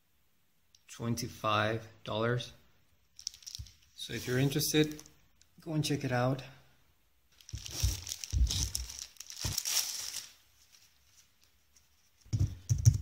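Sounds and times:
plastic wrapping rustling: 3.2 - 5.2, 7.3 - 12.2.

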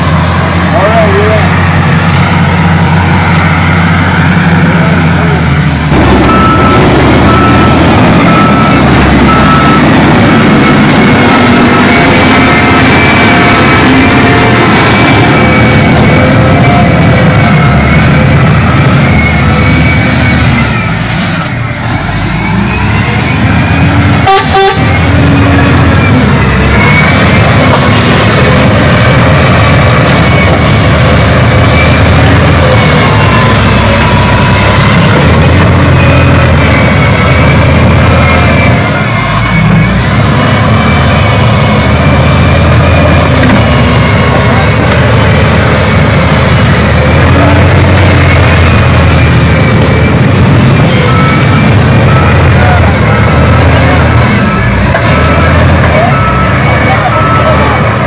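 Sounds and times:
diesel engine running: 0.0 - 58.0
reversing alarm beeping: 0.0 - 58.0
vehicle horn toots: 24.2 - 25.0.

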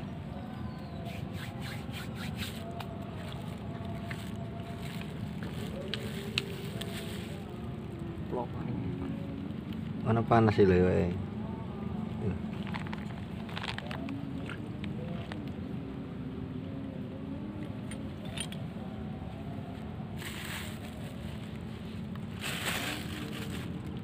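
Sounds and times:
rustling: 20.2 - 23.9.

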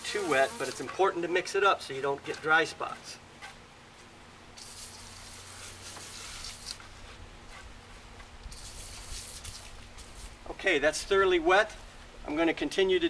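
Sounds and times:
hiss: 4.6 - 6.8, 8.5 - 10.4.

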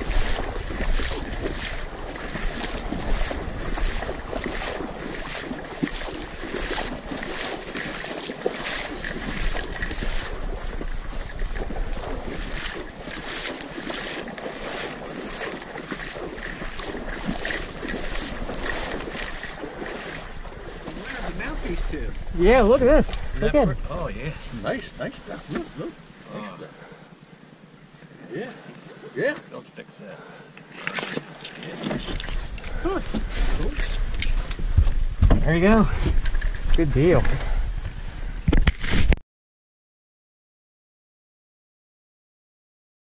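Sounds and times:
wind noise on microphone: 0.0 - 8.0, 8.6 - 15.4, 16.1 - 24.2, 31.8 - 39.2
sloshing steps in water: 0.0 - 22.1
rustling dry stalks: 0.0 - 23.4, 30.5 - 39.1.

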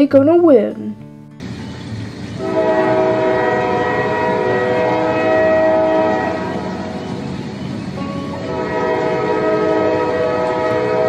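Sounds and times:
moving train rumble: 1.4 - 11.0
train horn blast: 2.4 - 11.0.

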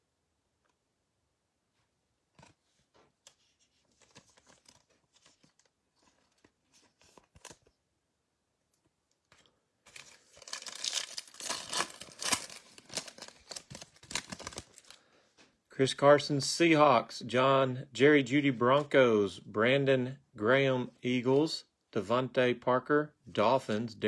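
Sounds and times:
foil wrapper tearing and crinkling: 9.9 - 15.0.

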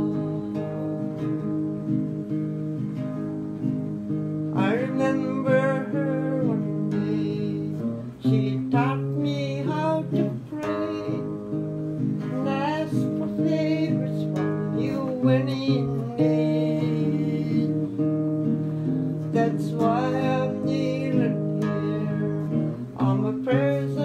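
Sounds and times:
acoustic guitar strumming: 0.0 - 24.0
woman singing with vibrato: 12.2 - 18.0.

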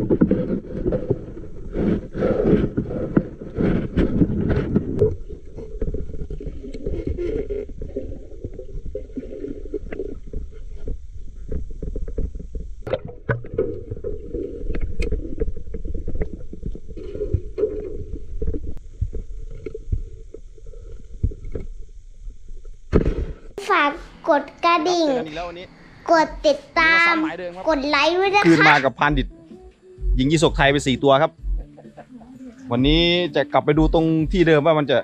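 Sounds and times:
water gurgling: 0.0 - 22.9
muffled underwater rumbling: 0.0 - 28.1.

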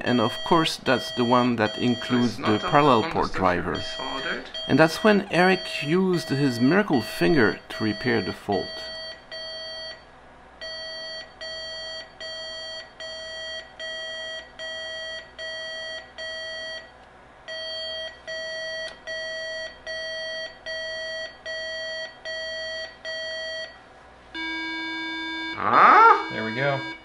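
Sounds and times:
short high-pitched beeps: 0.2 - 9.0.

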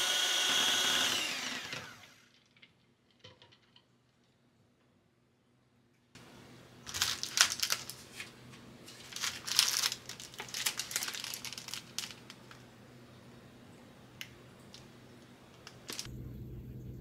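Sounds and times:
plastic packs crinkling: 6.8 - 12.6, 15.6 - 16.1.

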